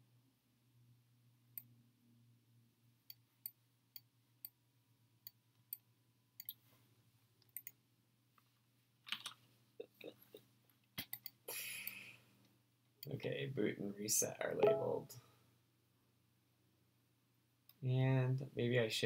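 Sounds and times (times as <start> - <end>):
computer mouse clicks: 7.4 - 7.8.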